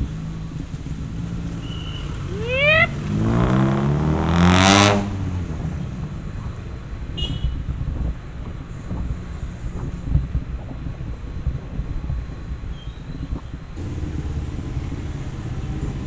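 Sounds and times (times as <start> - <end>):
vehicle engine passing: 0.0 - 6.5, 13.8 - 16.0
traffic rumble: 0.0 - 16.0.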